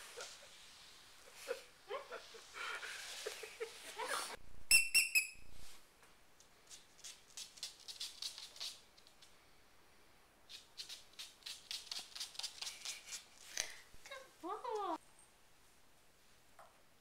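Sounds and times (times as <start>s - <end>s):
squeaky toy squeaks: 4.7s - 5.4s.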